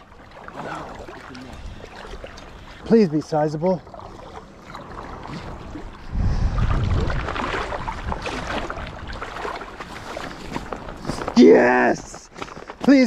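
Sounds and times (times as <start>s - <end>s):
wind buffeting microphone: 3.9s - 11.4s.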